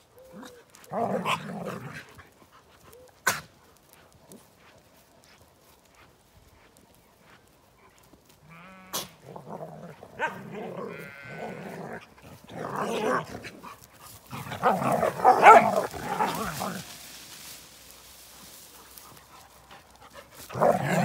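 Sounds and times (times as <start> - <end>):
sheep bleating: 8.4 - 9.3, 10.7 - 11.7
dogs playing roughly: 9.3 - 21.0.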